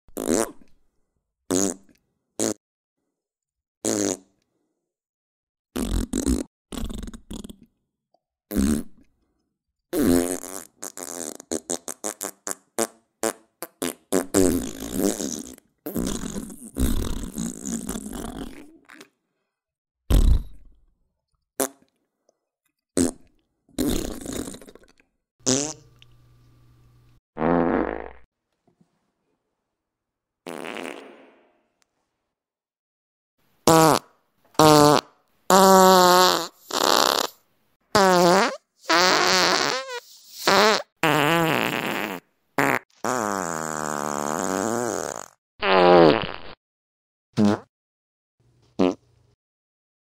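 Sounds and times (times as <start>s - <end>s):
fart sounds: 0.1s - 0.7s, 1.5s - 2.6s, 3.8s - 4.3s, 5.8s - 7.7s, 8.5s - 9.0s, 9.9s - 19.1s, 20.1s - 20.7s, 23.0s - 25.9s, 27.4s - 28.3s, 30.4s - 31.6s, 33.6s - 46.6s, 47.4s - 47.7s, 48.8s - 49.0s.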